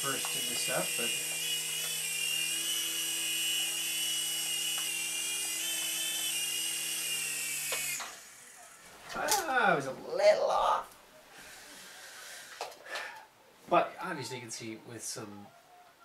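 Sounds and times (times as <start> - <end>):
toy helicopter whining in flight: 0.0 - 9.5.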